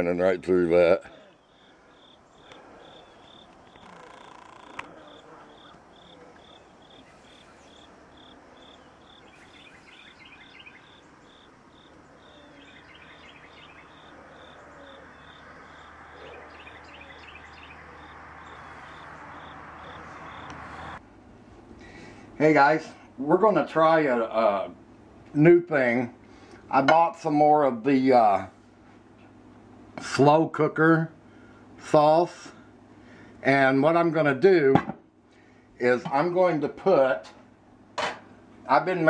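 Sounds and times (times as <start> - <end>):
low steady hum: 0.0 - 39.0
birds twittering: 0.3 - 21.0
crickets chirping: 1.1 - 21.0.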